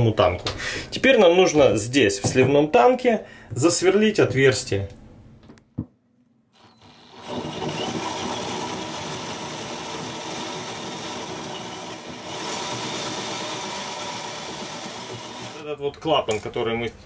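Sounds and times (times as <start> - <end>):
power drill cutting plastic: 6.6 - 15.6.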